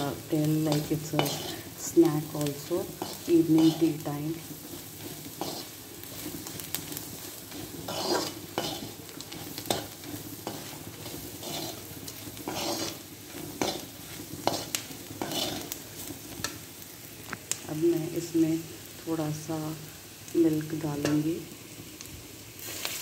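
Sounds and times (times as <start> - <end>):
metal spatula scraping pan: 0.0 - 16.6
food sizzling in oil: 0.0 - 23.0.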